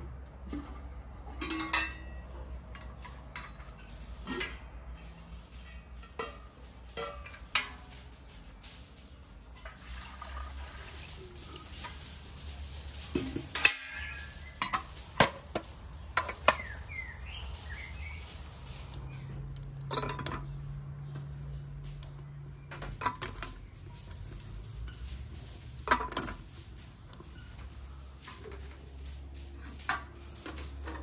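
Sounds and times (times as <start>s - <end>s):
metal cookware clinking: 1.3s - 4.6s, 5.6s - 8.5s, 12.9s - 28.8s, 29.6s - 31.0s.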